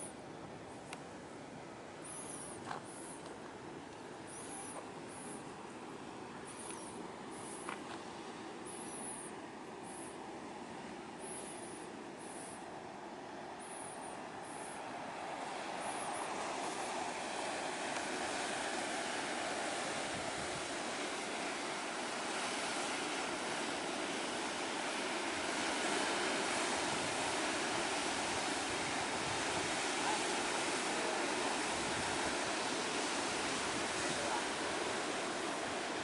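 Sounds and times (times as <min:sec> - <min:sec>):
sea surf breaking on rocks: 0:14.2 - 0:36.0.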